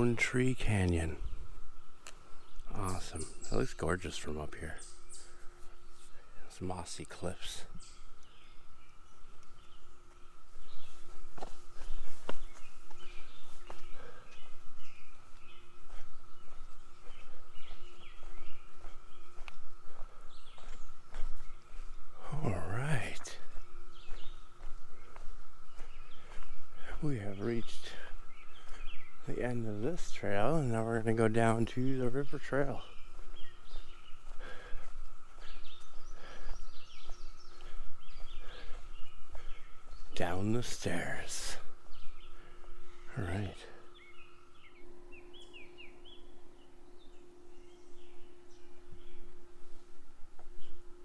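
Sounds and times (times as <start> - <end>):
faint hum: 0.0 - 51.0
footsteps on a trail: 0.0 - 51.0
songbirds chirping: 0.0 - 51.0.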